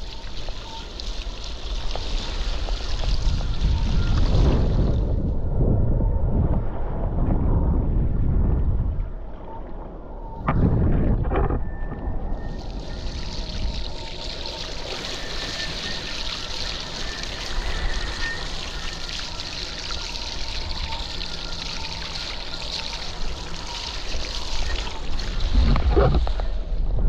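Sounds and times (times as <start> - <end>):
wind buffeting microphone: 1.6 - 9.5, 10.2 - 14.3
water rushing past mast: 12.3 - 26.9.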